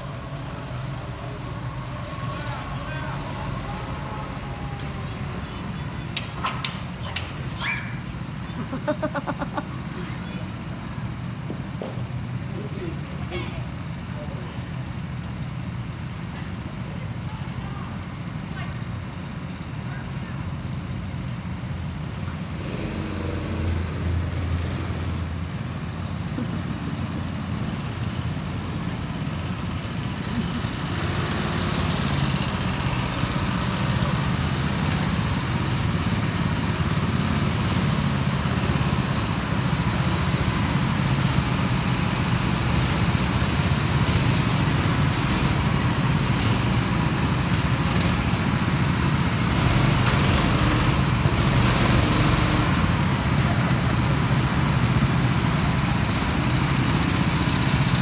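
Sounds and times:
go-kart engines humming: 0.0 - 58.0.

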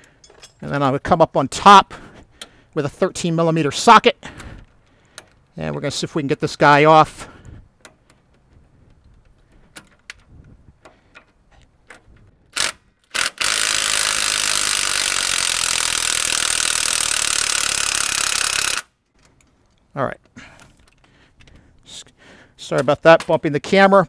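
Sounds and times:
power wrench running: 12.5 - 19.0.

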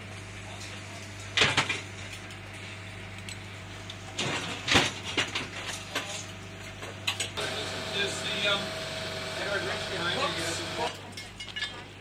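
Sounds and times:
boat engine humming: 7.4 - 10.9.

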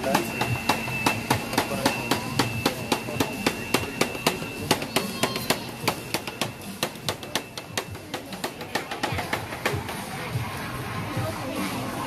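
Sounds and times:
steady high tone: 0.0 - 8.0.

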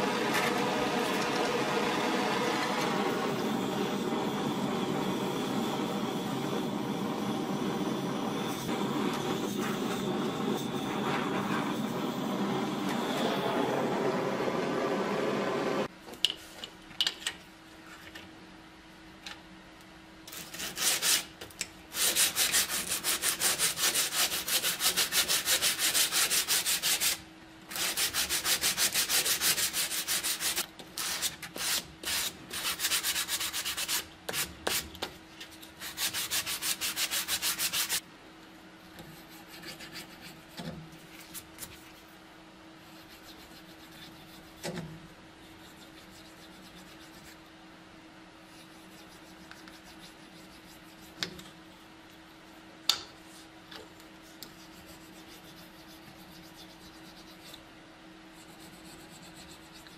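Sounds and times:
sandpaper rubbing back and forth: 21.9 - 34.9, 35.7 - 38.0, 39.0 - 40.5, 42.8 - 44.6, 45.4 - 47.4, 48.5 - 51.2, 54.6 - 57.5, 58.4 - 59.9.

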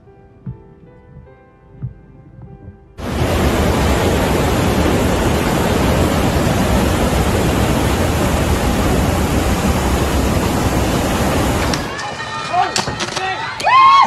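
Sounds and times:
heavy rain: 3.0 - 13.0
floodwater rushing: 3.0 - 13.8.

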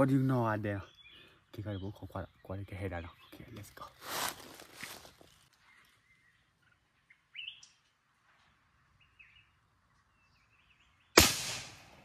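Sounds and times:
faint bird chirps: 0.1 - 11.2
loud gunshot crack: 11.2 - 12.0.

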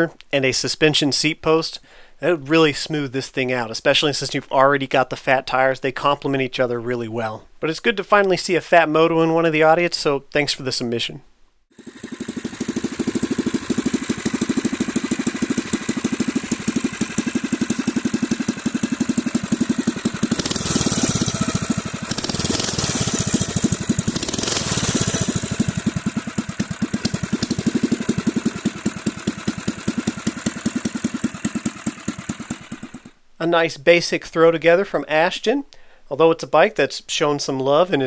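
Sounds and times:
engine revving: 11.7 - 33.1
motorbike engine idling: 11.7 - 33.2.

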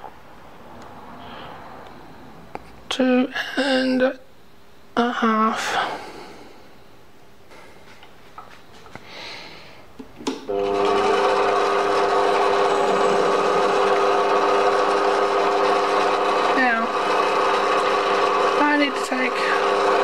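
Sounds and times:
lathe motor whining: 10.5 - 20.0.

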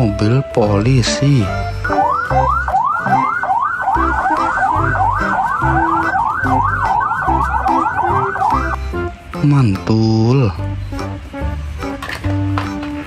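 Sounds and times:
police siren yelping: 1.5 - 8.8.

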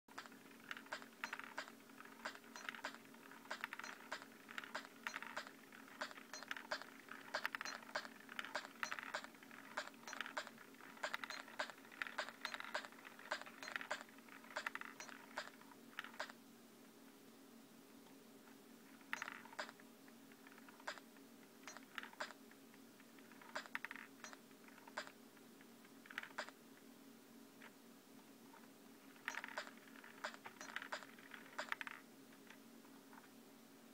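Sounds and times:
clicky rhythm machine hits: 0.1 - 14.0.

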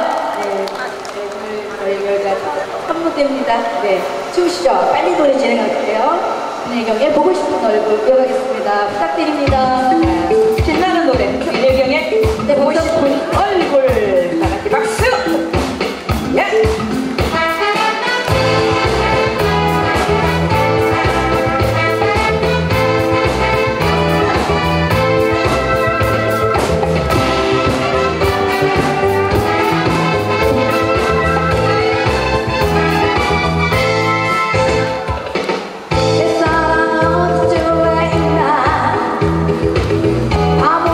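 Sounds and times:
upbeat pop instrumental: 9.0 - 40.9.

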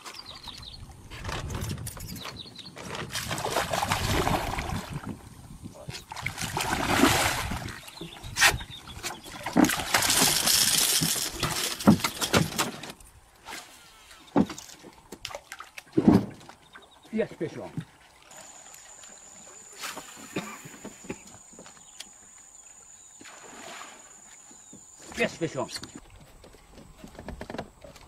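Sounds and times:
fish splashing in water: 3.1 - 5.0, 6.1 - 7.9.

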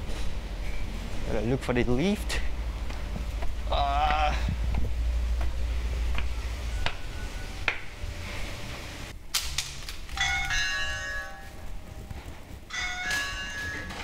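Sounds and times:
electronic doorbell chime: 10.2 - 11.7, 12.7 - 14.0.

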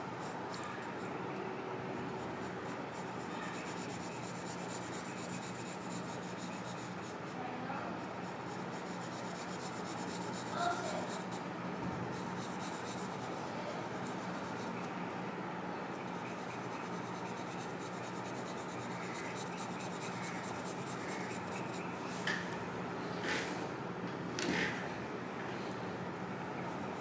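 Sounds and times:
faint steady hum: 0.0 - 27.0
pencil scratching on paper: 2.4 - 7.2, 8.0 - 11.4, 12.1 - 14.8, 15.9 - 21.9.

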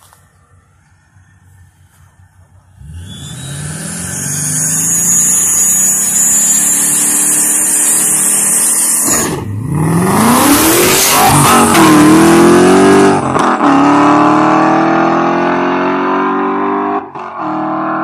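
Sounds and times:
car engine revving: 2.6 - 18.0.

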